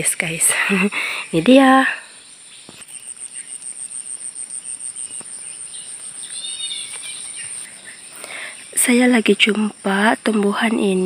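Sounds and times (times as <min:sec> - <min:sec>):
insects chirping in pulsing trill: 0:00.0 - 0:11.0.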